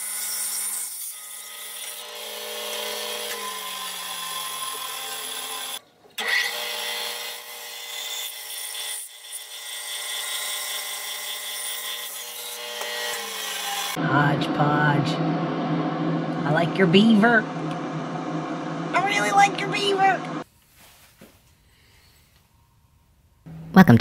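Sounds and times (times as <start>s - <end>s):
bandsaw motor hum: 9.1s - 20.4s.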